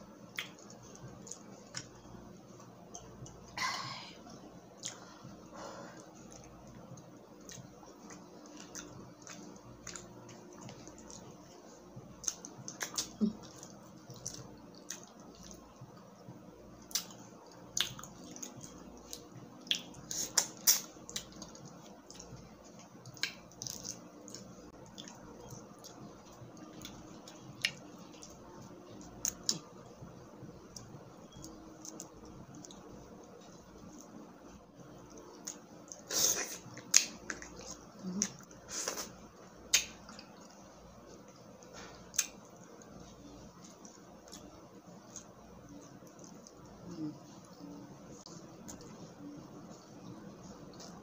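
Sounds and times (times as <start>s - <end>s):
wet chewing: 6.0s - 16.1s, 35.0s - 46.8s.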